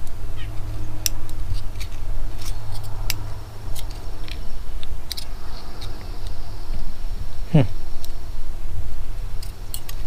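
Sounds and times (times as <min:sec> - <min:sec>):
steady low hum: 0:00.0 - 0:10.0
small metal clicks: 0:01.0 - 0:06.4, 0:09.4 - 0:10.0.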